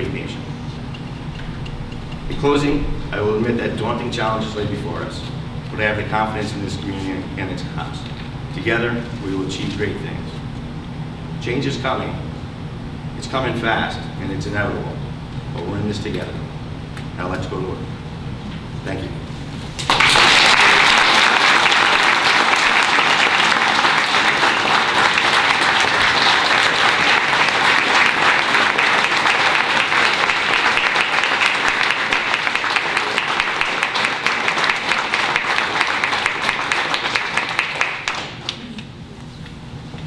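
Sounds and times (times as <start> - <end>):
audience applauding: 19.8 - 38.7.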